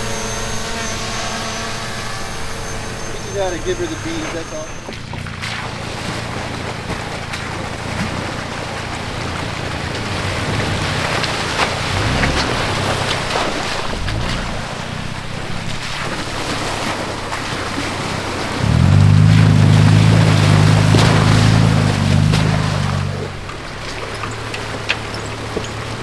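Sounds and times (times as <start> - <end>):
off-road vehicle engine revving: 0.0 - 26.0
tyres clicking over rocks: 20.2 - 26.0.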